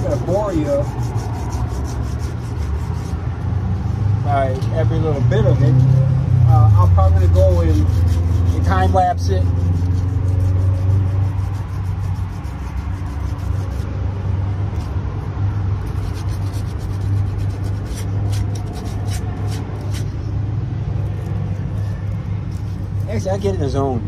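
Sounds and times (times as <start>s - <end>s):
sandpaper scratchy rubbing: 0.0s - 3.2s, 6.7s - 14.0s, 15.8s - 20.3s, 21.0s - 23.8s.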